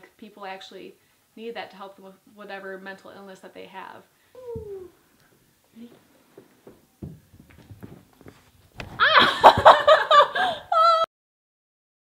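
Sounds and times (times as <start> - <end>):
woman laughing loudly: 9.0 - 11.1.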